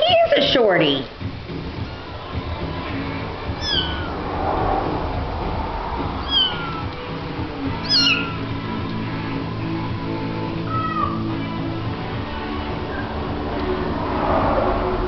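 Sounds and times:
kitten meowing: 3.6 - 4.1, 6.2 - 6.9, 7.8 - 8.4, 10.7 - 11.3.

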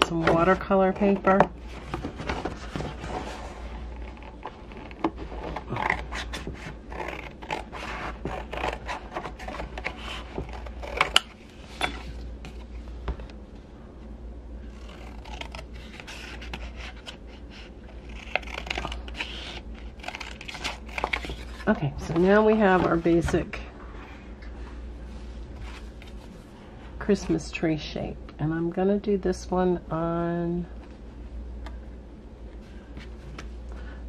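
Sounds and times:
scissors cutting paper: 4.0 - 11.3, 14.7 - 23.2.

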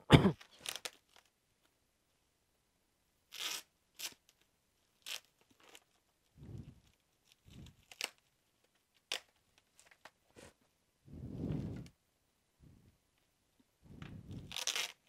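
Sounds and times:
packaging ripping and crinkling: 0.4 - 1.3, 7.6 - 8.3, 14.3 - 15.0.

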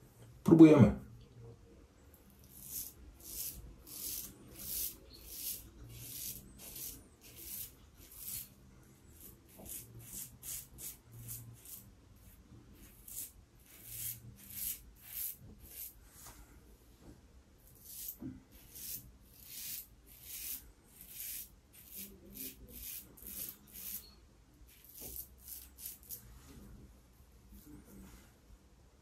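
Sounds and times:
razor scraping stubble: 2.5 - 8.6, 12.8 - 16.0, 17.7 - 26.2.

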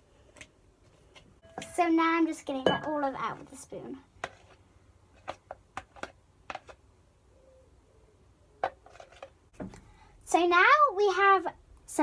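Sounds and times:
spoon scraping plastic jug: 3.3 - 6.8, 8.6 - 9.4.

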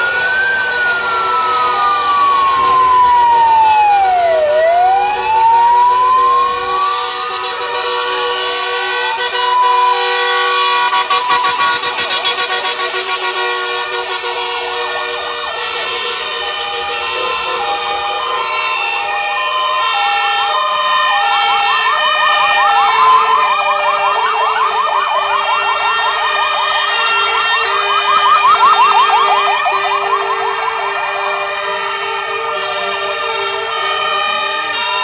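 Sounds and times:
fast yelping siren: 0.0 - 7.6, 8.8 - 13.4, 14.4 - 32.8
rising wail siren: 0.0 - 35.0
two-tone sirens: 0.0 - 35.0.

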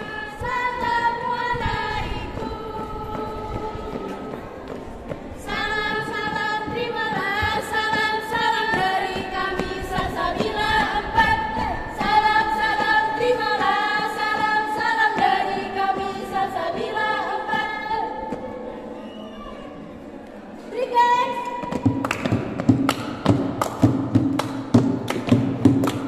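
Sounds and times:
girls singing a cheer song: 0.0 - 18.9.

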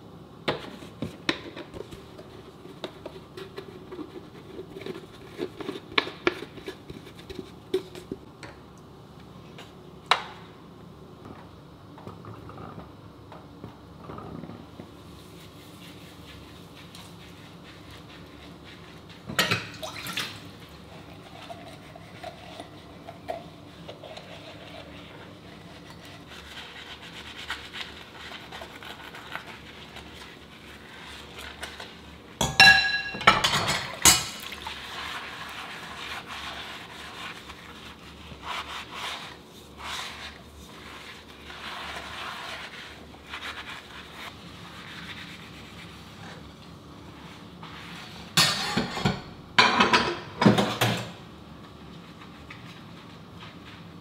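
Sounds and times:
sponge rubbing on plates: 15.0 - 19.2, 20.6 - 32.4, 34.7 - 46.4
dishes clattering and clinking: 32.4 - 34.6, 48.4 - 51.2.

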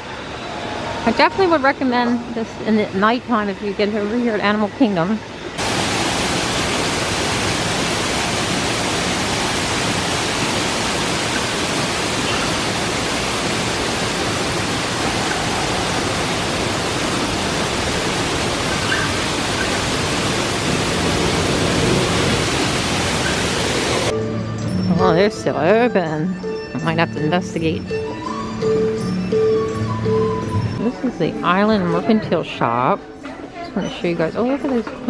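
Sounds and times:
waterfall rushing: 5.6 - 24.1.

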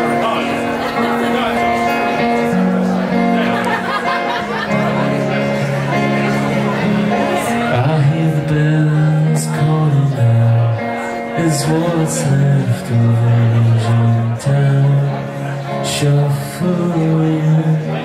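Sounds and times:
live rock band playing: 0.0 - 18.0.

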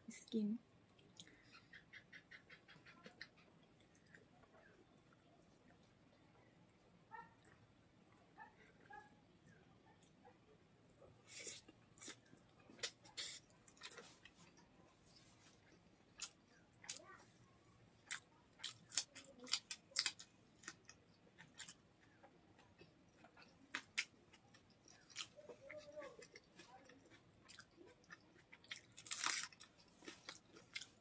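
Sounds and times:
close chewing and crunching: 11.4 - 31.0.

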